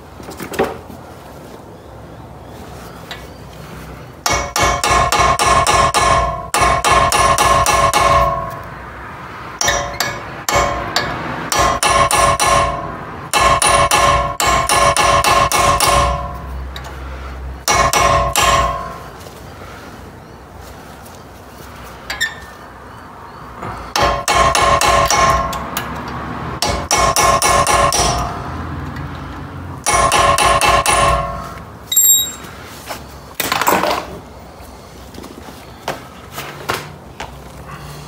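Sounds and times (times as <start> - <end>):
hammer striking metal punch: 4.2 - 8.7, 9.6 - 16.4, 17.6 - 19.0, 23.9 - 25.6, 26.6 - 28.4, 29.8 - 32.4.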